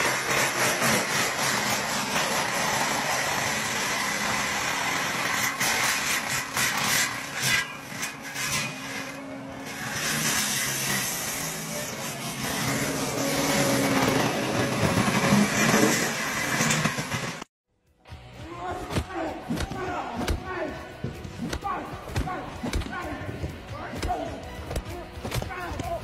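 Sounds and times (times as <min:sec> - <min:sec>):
forestry mulcher grinding wood: 0:00.0 - 0:17.5.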